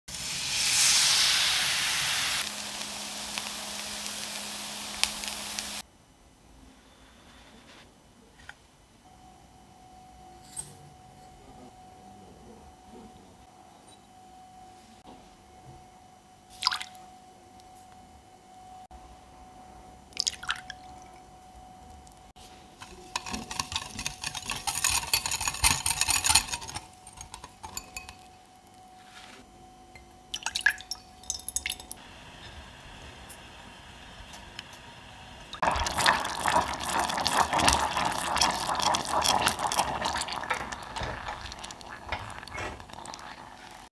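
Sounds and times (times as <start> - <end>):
batter sizzling in hot oil: 0.1 - 5.8, 35.4 - 43.9
wire whisk rattling in glass bowl: 22.8 - 28.3.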